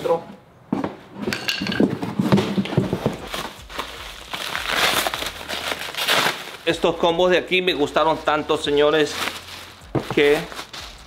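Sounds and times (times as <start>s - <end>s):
cardboard knocks and rustling: 1.6s - 3.6s, 9.9s - 10.4s
plastic wrapping rustling: 1.7s - 11.0s.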